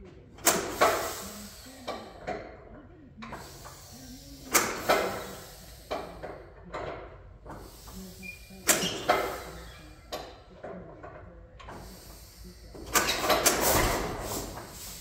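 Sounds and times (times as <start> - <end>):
tractor engine cranking: 0.0 - 15.0.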